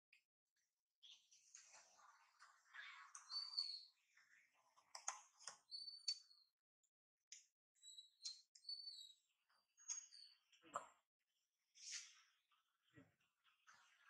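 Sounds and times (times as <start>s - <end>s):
faint high-pitched chirps: 1.0s - 6.6s, 7.3s - 10.9s
soft clicks: 4.9s - 6.2s.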